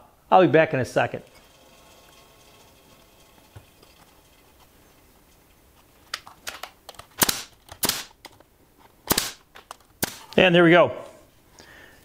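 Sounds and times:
nail gun shots: 0:07.1 - 0:08.2, 0:09.0 - 0:10.4.

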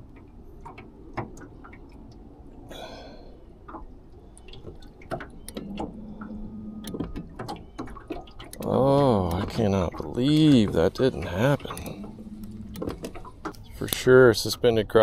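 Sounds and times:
water lapping on a hull: 0:00.0 - 0:15.0
faint low hum: 0:08.6 - 0:14.8.

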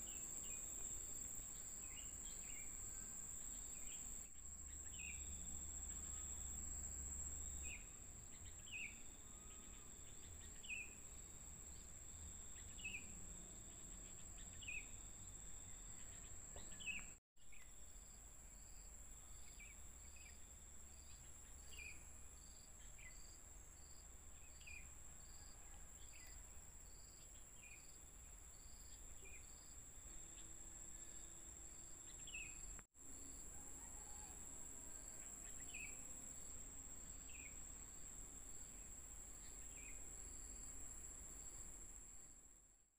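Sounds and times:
insects trilling: 0:18.0 - 0:42.4.

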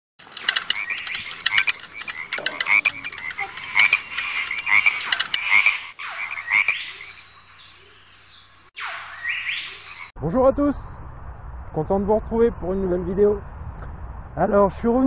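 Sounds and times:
frogs croaking: 0:00.2 - 0:10.1.

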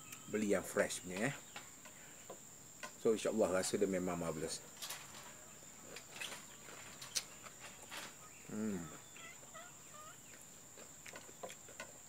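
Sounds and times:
faint high bird chirps: 0:00.0 - 0:02.3, 0:05.4 - 0:10.6
clicks and smacks of eating: 0:10.3 - 0:12.0.

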